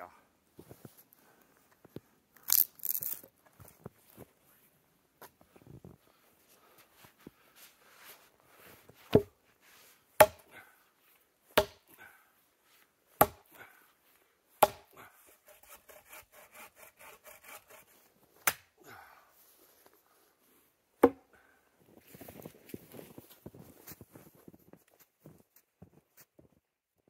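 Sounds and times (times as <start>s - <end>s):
firewood chopping strikes: 9.1s - 9.3s, 10.2s - 10.5s, 11.6s - 11.9s, 13.2s - 13.5s, 14.6s - 14.9s, 18.4s - 18.7s, 21.0s - 21.2s.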